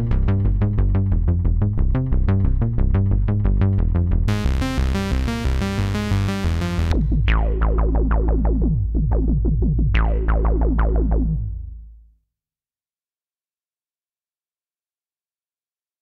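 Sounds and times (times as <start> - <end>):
synthesizer bass sequence: 0.0 - 12.0.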